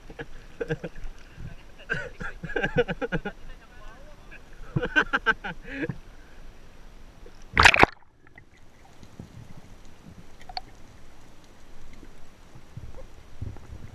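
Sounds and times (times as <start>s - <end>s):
water splashing: 7.3s - 13.9s
faint clicks underwater: 7.4s - 13.7s.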